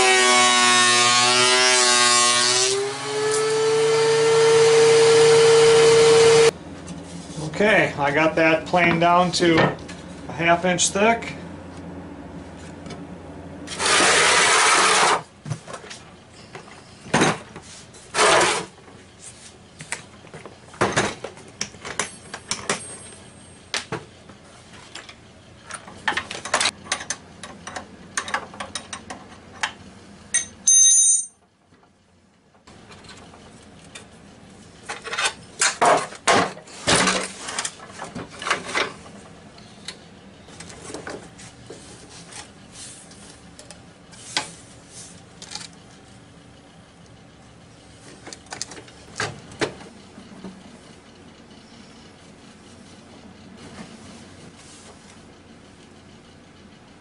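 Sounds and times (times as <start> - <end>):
loud scrape: 13.7 - 15.3, 17.6 - 18.8.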